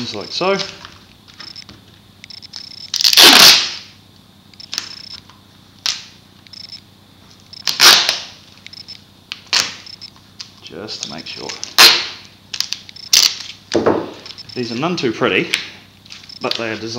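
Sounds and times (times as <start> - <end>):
duct tape ripping off the roll: 2.9 - 3.9, 7.6 - 8.4, 11.5 - 13.6.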